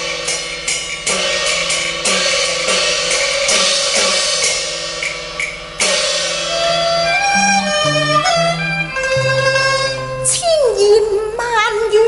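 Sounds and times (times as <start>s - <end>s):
cymbal and drum strikes: 0.0s - 10.4s
sustained melody instruments: 6.3s - 10.4s.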